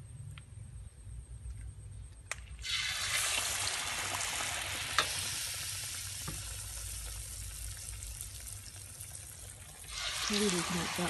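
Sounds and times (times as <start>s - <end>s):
food sizzling in hot oil: 2.6s - 11.0s.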